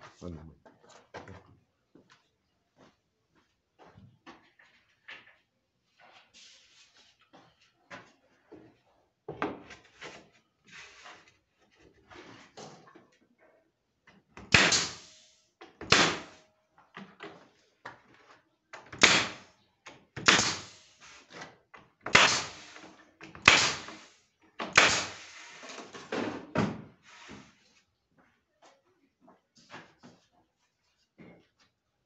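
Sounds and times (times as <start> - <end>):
pin nailer snap and hiss: 14.5 - 15.2, 15.8 - 16.3, 19.0 - 19.4, 20.2 - 20.9, 22.1 - 22.8, 23.4 - 25.4.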